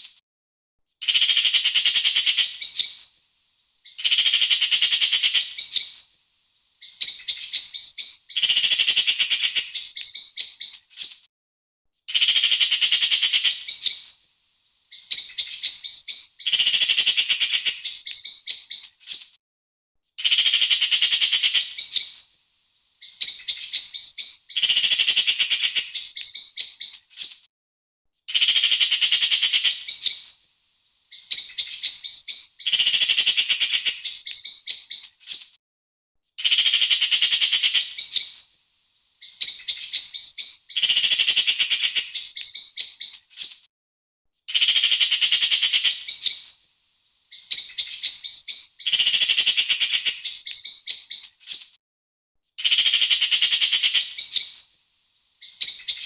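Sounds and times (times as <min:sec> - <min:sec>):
magpie chattering: 0:01.0 - 0:03.0, 0:03.9 - 0:06.0, 0:06.8 - 0:11.2, 0:12.1 - 0:14.1, 0:14.9 - 0:19.2, 0:20.2 - 0:22.2, 0:23.0 - 0:27.3, 0:28.3 - 0:30.4, 0:31.1 - 0:35.4, 0:36.4 - 0:38.4, 0:39.2 - 0:43.5, 0:44.5 - 0:46.6, 0:47.3 - 0:51.6, 0:52.6 - 0:54.6, 0:55.4 - 0:56.0.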